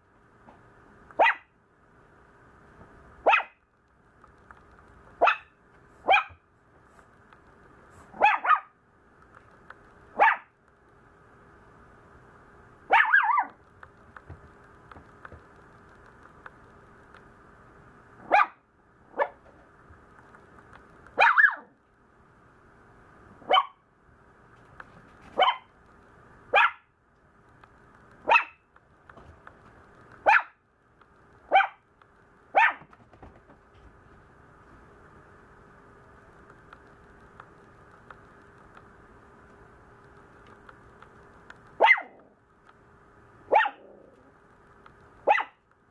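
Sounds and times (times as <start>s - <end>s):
puppy barking: 1.2s - 1.5s, 3.2s - 3.6s, 5.2s - 6.4s, 8.1s - 8.8s, 10.2s - 10.6s, 12.9s - 13.6s, 18.2s - 19.4s, 21.2s - 21.8s, 23.4s - 23.8s, 25.4s - 25.7s, 26.5s - 26.9s, 28.2s - 28.6s, 30.2s - 30.6s, 31.5s - 31.8s, 32.5s - 32.9s, 41.8s - 42.3s, 43.5s - 44.0s, 45.2s - 45.6s.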